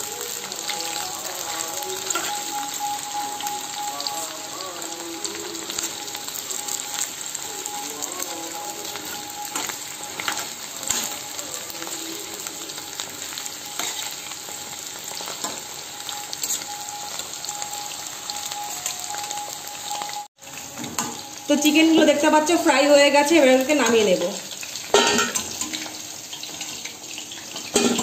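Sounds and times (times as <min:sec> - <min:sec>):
chicken deep-frying in oil: 0:00.0 - 0:28.0
metal spatula clinking on pan: 0:24.9 - 0:25.9, 0:27.7 - 0:28.0.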